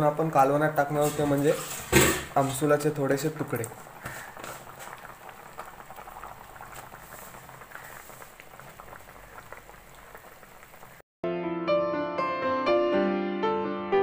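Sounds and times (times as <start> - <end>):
curry bubbling in a pot: 0.1 - 11.0
piano music: 11.2 - 14.0.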